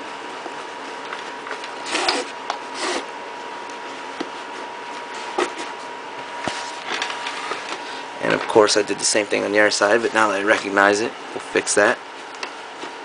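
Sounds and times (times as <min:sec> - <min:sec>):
faint steady hum: 0:00.0 - 0:13.0
canvas strap rustling scrapes: 0:01.8 - 0:03.1.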